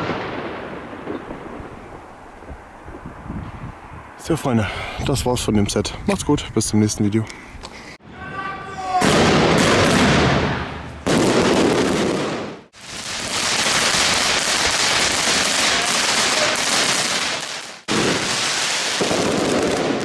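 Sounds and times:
fireworks hissing and crackling: 0:11.1 - 0:20.0.

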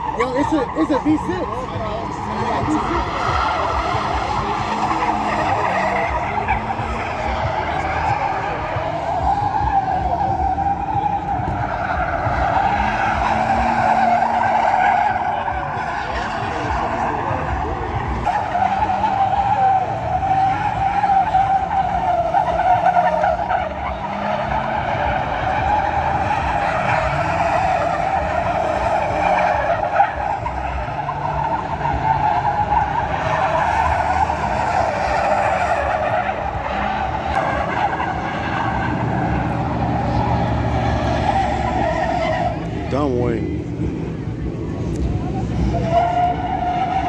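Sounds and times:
tyres squealing: 0:00.0 - 0:43.3, 0:45.2 - 0:47.0
car engine running: 0:00.0 - 0:47.0.

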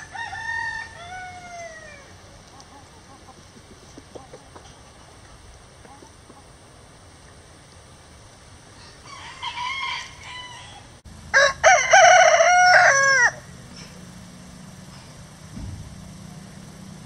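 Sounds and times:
rooster crowing: 0:00.0 - 0:02.1, 0:08.8 - 0:13.5.

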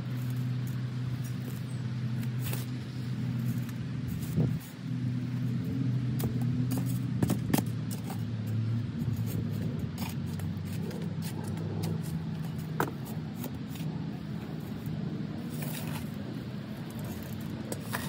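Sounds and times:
shovel digging soil: 0:00.0 - 0:04.8, 0:15.4 - 0:16.2, 0:16.9 - 0:18.0
vehicle engine humming: 0:00.0 - 0:18.0.

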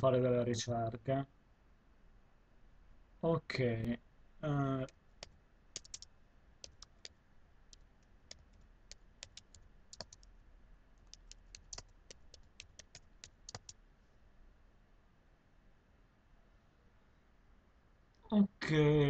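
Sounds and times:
typing on computer keyboard: 0:04.8 - 0:10.3, 0:11.0 - 0:13.8.

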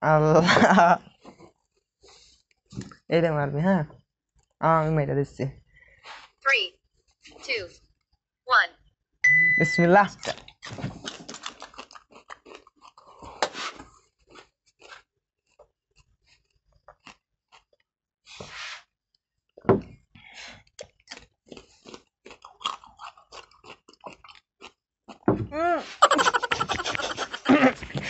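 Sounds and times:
onion crunching and chewing: 0:10.2 - 0:17.8, 0:20.5 - 0:25.3.

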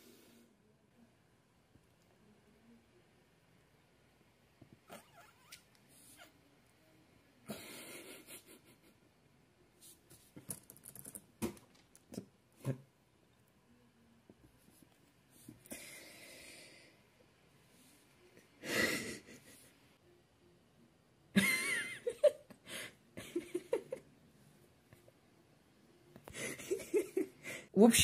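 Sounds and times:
man laughing breathlessly: 0:18.6 - 0:19.7.

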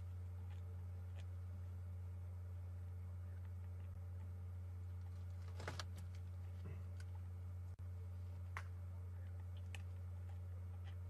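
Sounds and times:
low hum: 0:00.0 - 0:11.0
bones cracking while chewed: 0:00.2 - 0:01.4.

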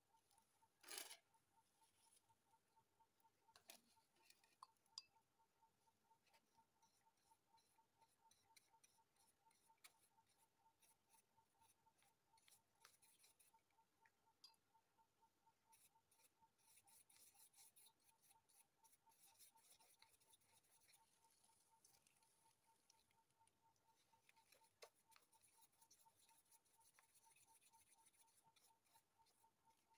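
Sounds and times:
brush rubbing on paper: 0:08.6 - 0:13.7, 0:15.7 - 0:23.1, 0:23.9 - 0:29.9.

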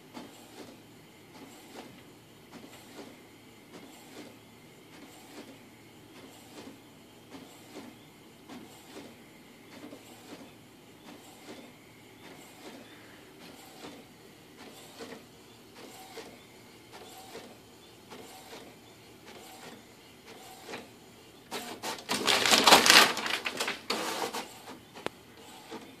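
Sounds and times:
loud rustling burst: 0:21.8 - 0:24.4.

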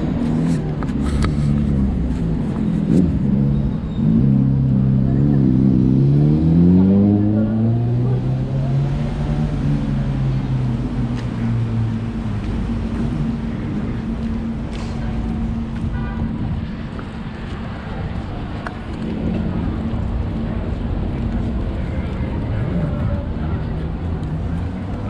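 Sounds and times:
vehicle engine accelerating: 0:00.0 - 0:15.8.

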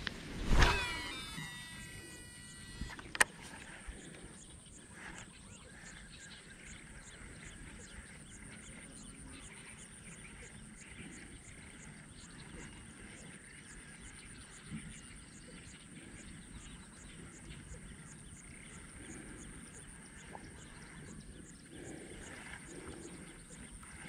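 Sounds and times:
outdoor ambience: 0:00.0 - 0:24.0
high ticking: 0:00.6 - 0:03.2
fishing reel click: 0:00.6 - 0:03.8.

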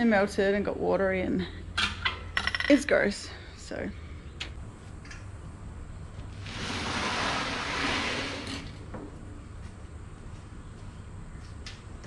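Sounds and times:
fridge scraping across concrete: 0:06.3 - 0:08.8.

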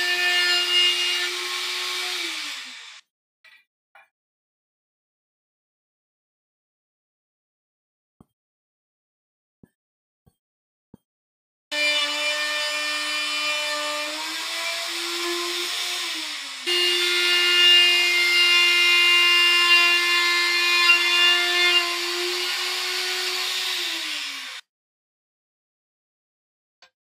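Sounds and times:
router bit rushing: 0:00.0 - 0:03.0, 0:11.7 - 0:24.6
electric router motor whine: 0:00.9 - 0:03.0, 0:14.4 - 0:17.9, 0:22.0 - 0:24.6.

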